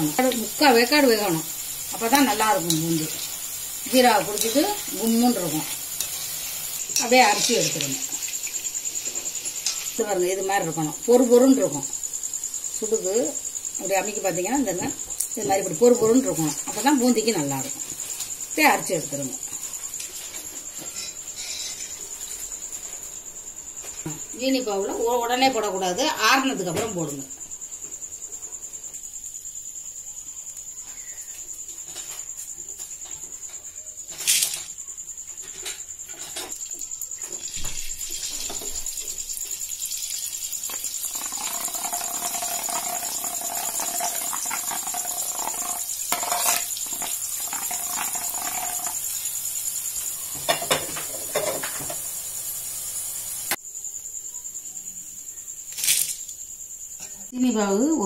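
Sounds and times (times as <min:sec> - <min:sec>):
batter sizzling in hot oil: 0:00.0 - 0:14.5, 0:36.0 - 0:53.6.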